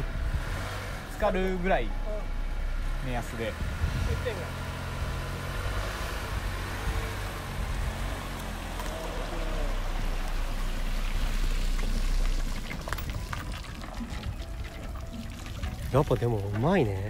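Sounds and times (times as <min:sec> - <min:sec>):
low engine rumble: 0:00.0 - 0:17.0
water pouring and dripping: 0:08.3 - 0:17.0.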